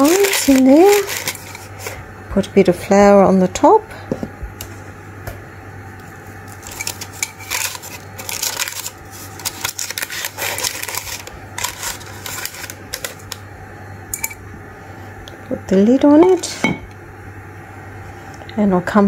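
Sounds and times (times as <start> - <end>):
parchment paper crinkling: 0.0 - 2.0, 6.5 - 13.4
low steady hum: 0.0 - 19.0.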